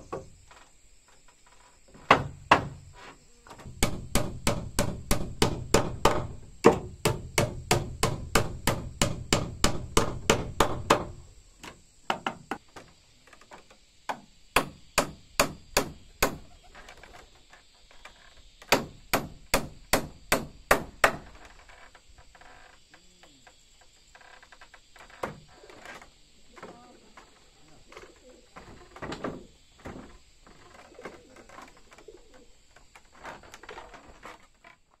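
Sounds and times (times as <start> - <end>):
hammer driving nails into wood: 3.7 - 11.2, 14.1 - 16.4, 18.7 - 21.3.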